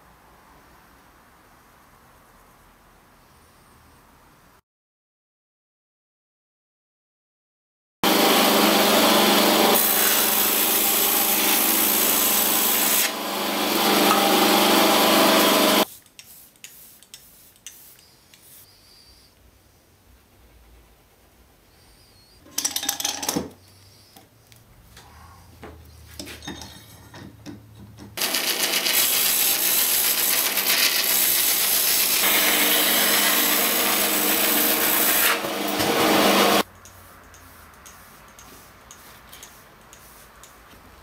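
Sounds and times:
power tool cutting wood: 0:08.0 - 0:15.9, 0:28.2 - 0:36.6.

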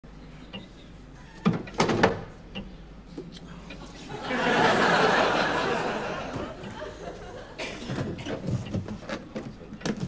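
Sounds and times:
studio audience laughing: 0:04.1 - 0:07.6.

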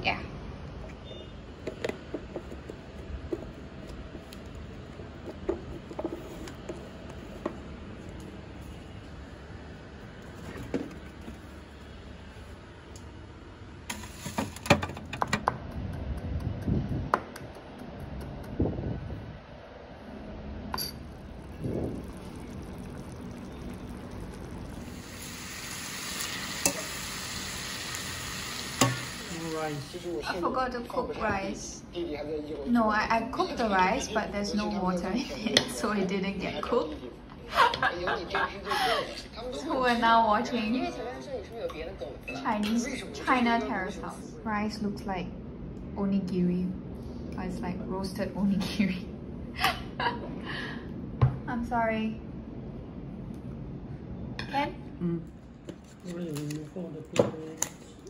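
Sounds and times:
steady low hum: 0:00.0 - 0:30.9, 0:43.8 - 0:58.0
vegetables sizzling in a frying pan: 0:21.3 - 0:30.1.

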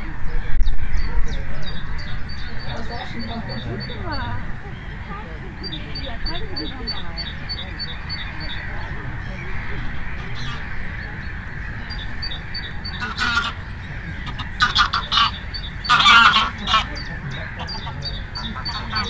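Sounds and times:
geese honking: 0:00.0 - 0:19.0.

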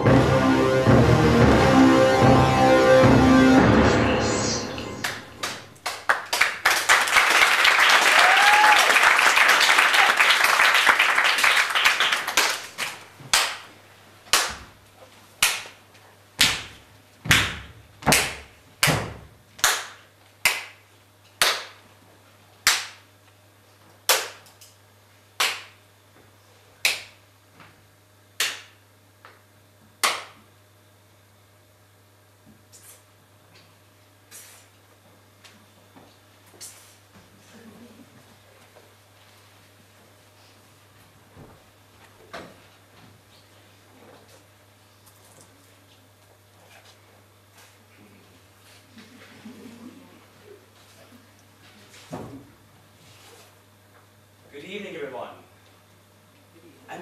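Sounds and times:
audience applause: 0:03.2 - 0:13.6
single sharp claps: 0:14.3 - 0:14.6, 0:15.4 - 0:15.8, 0:16.4 - 0:20.8, 0:21.4 - 0:21.8, 0:22.6 - 0:23.0, 0:24.1 - 0:24.5, 0:25.4 - 0:25.8, 0:26.8 - 0:27.2, 0:28.4 - 0:29.4, 0:30.0 - 0:30.4.

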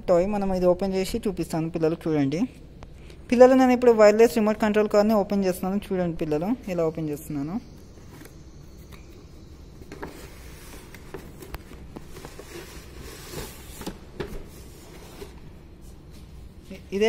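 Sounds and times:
cardboard box rustling: 0:09.8 - 0:15.4.

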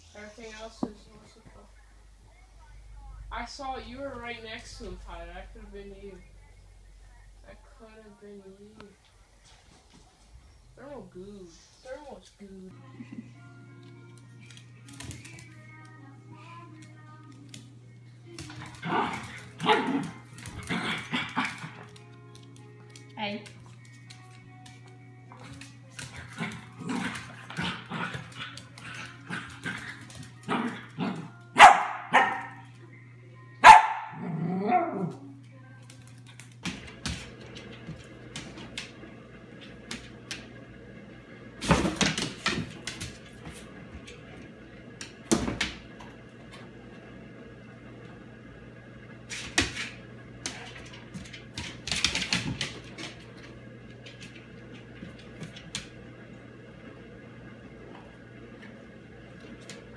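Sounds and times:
dog barking and yipping: 0:31.6 - 0:32.6.

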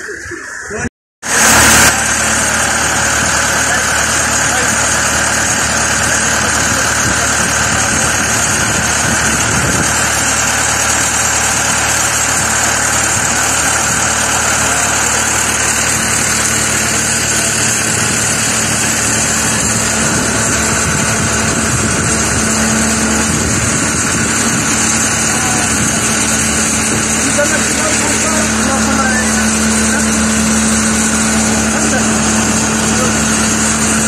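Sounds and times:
diesel engine idling: 0:01.2 - 0:34.0.

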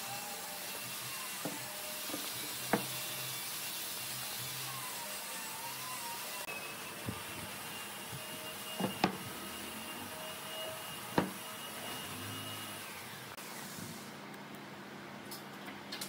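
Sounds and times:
workshop machine hum: 0:00.0 - 0:16.0
wood slabs knocking on workbench: 0:01.4 - 0:03.0, 0:08.8 - 0:09.2, 0:11.2 - 0:11.4.

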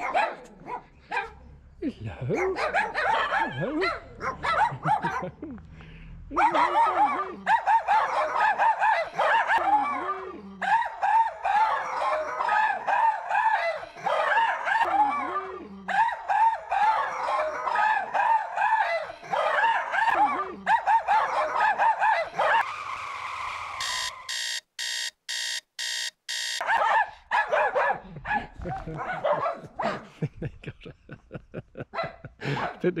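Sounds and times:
small dogs barking excitedly: 0:00.0 - 0:01.4, 0:02.3 - 0:05.4, 0:06.4 - 0:22.7, 0:26.6 - 0:30.2, 0:31.8 - 0:32.9
electronic beeps: 0:23.8 - 0:26.6.

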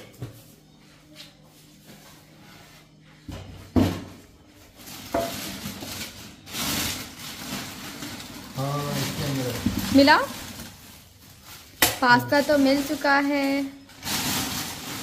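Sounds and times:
plastic bag rustling: 0:04.4 - 0:15.0.

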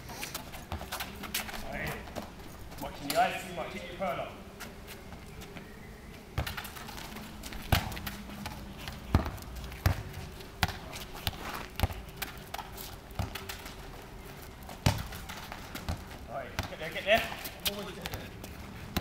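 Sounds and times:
football thudding on tarmac: 0:06.4 - 0:13.7, 0:14.8 - 0:18.3.

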